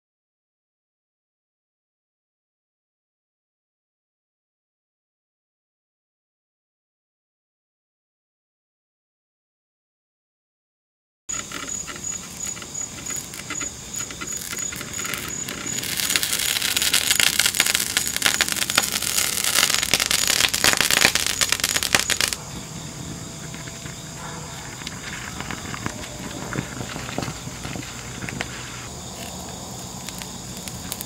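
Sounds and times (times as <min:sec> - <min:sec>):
molten metal crackling and popping: 0:11.3 - 0:31.0.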